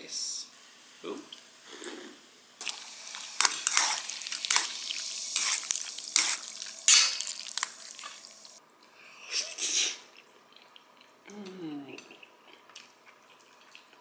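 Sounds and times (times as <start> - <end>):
noodles squelching in sauce: 2.6 - 8.6.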